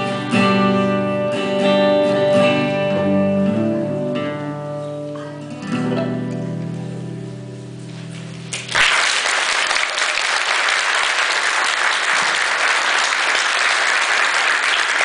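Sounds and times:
audience applause: 0:08.5 - 0:15.0.

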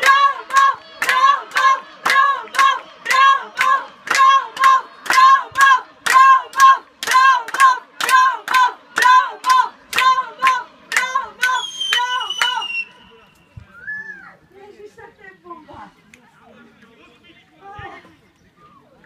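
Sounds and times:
spectators clapping rhythmically: 0:00.0 - 0:12.8
high voices chanting: 0:00.0 - 0:13.2.

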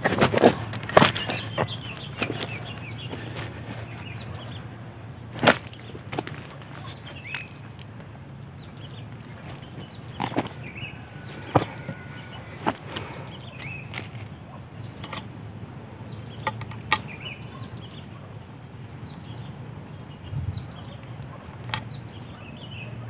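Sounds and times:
digging tool striking soil: 0:00.0 - 0:03.9, 0:05.4 - 0:07.5, 0:09.3 - 0:14.3
light rustling: 0:00.0 - 0:04.7, 0:05.4 - 0:08.1.

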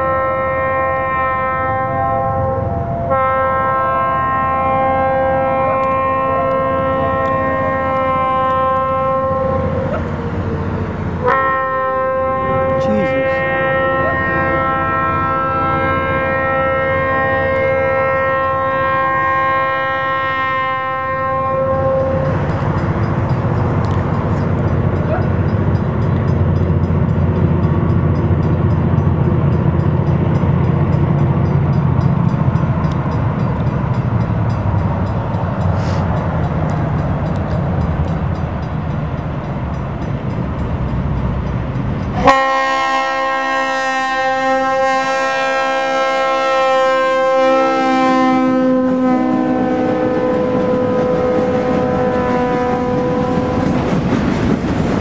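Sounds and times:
train horn blast: 0:00.0 - 0:10.2, 0:11.2 - 0:22.3, 0:42.1 - 0:54.0
diesel locomotive engine rumble: 0:00.0 - 0:55.0.

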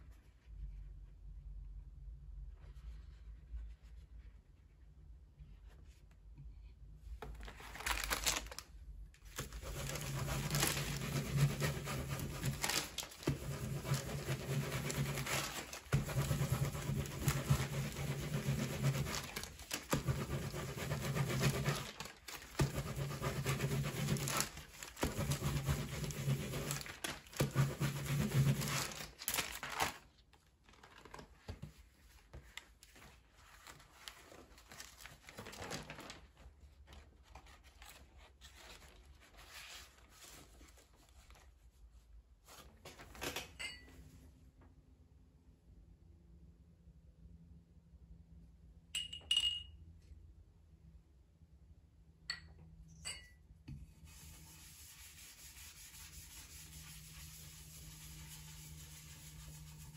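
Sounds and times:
paper rustling: 0:07.2 - 0:41.6
baren rasping over paper: 0:09.4 - 0:29.4.

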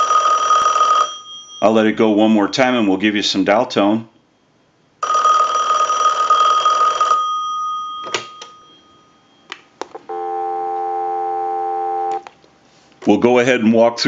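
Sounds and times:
telephone bell ringing: 0:00.0 - 0:01.7, 0:05.0 - 0:09.5, 0:10.1 - 0:12.2
dial tone: 0:10.1 - 0:12.2.

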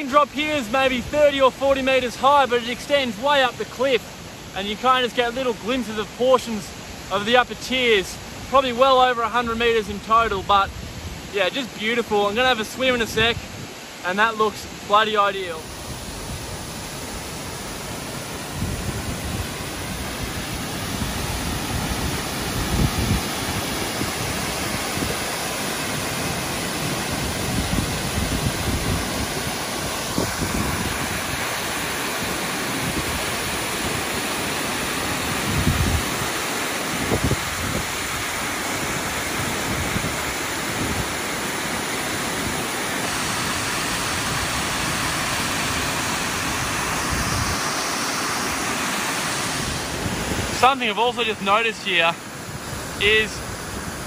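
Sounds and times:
waterfall rushing: 0:00.0 - 0:54.0
wind buffeting microphone: 0:15.7 - 0:48.0, 0:49.2 - 0:50.7.

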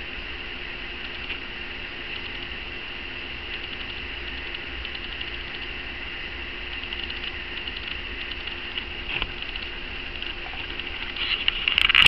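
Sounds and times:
electrical hiss: 0:00.0 - 0:12.0
high whine: 0:00.0 - 0:12.0
sharp clicks: 0:01.0 - 0:01.4, 0:02.1 - 0:02.6, 0:03.5 - 0:05.8, 0:06.7 - 0:12.0.

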